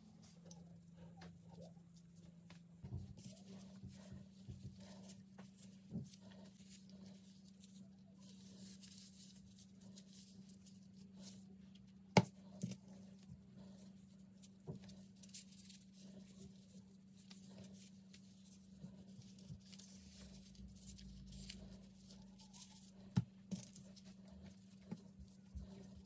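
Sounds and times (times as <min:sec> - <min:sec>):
plastic gloves crinkling: 0:04.3 - 0:12.0, 0:14.0 - 0:26.0.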